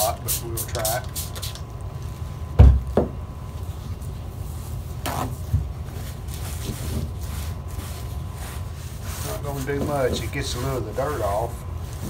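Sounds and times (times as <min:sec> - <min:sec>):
paper towel rustling: 0:03.5 - 0:12.0
faint rubbing: 0:05.9 - 0:12.0.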